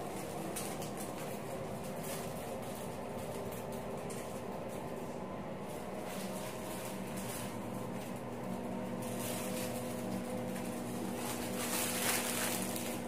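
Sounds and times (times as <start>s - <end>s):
ventilation fan humming: 0.0s - 13.0s.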